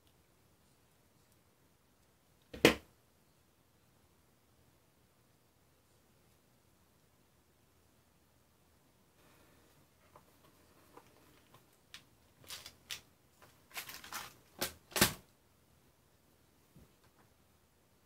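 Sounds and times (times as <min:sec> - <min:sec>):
plastic box of screws clicking: 0:11.4 - 0:13.1.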